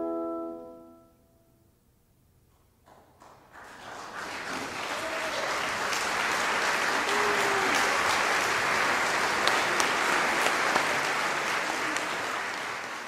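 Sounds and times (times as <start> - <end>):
audience applause: 3.2 - 13.0.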